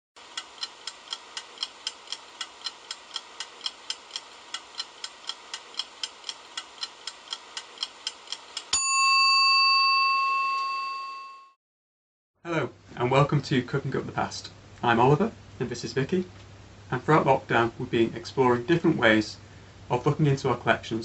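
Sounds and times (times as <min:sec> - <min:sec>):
kitchen timer ticking: 0:00.2 - 0:08.9
timer bell ding: 0:08.8 - 0:11.6.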